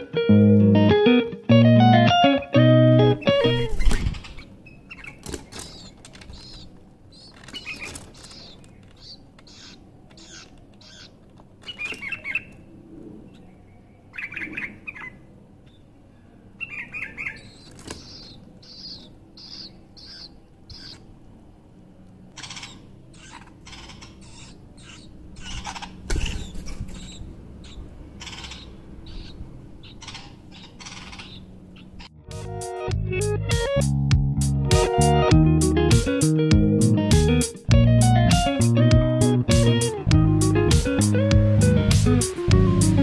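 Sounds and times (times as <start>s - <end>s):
bulbuls chirping: 3.0s - 32.3s
bird wingbeats flurry: 3.5s - 4.4s, 5.1s - 9.0s.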